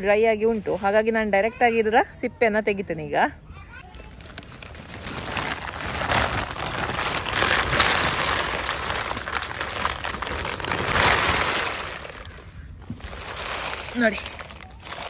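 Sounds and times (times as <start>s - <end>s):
plastic sack crinkling: 3.8s - 15.0s
dry pods rattling: 3.9s - 15.0s.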